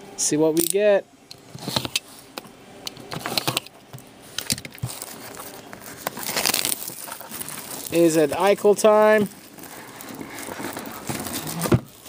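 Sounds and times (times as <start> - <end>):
shrink wrap crinkling and tearing: 4.8 - 12.0.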